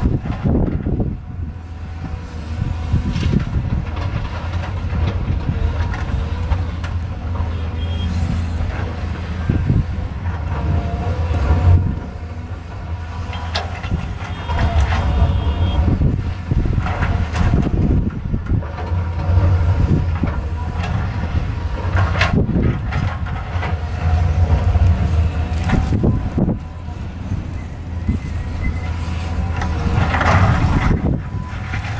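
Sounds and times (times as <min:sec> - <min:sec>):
excavator diesel engine droning: 0:00.0 - 0:31.9
high squeals: 0:07.5 - 0:08.7.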